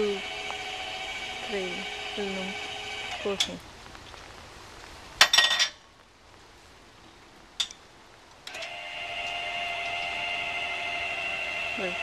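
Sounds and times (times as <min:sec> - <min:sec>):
electric jack motor whine: 0:00.0 - 0:03.5, 0:08.5 - 0:12.0.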